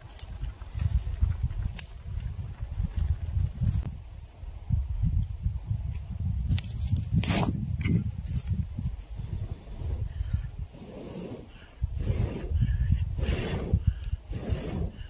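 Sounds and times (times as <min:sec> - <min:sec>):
high insect drone: 0:00.0 - 0:15.0
wind buffeting microphone: 0:00.0 - 0:15.0.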